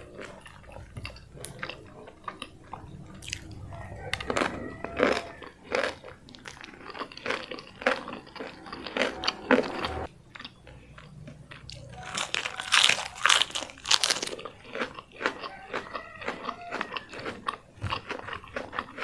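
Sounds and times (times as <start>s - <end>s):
chewing food: 0.0s - 19.0s
crisp lettuce crunches: 11.8s - 19.0s.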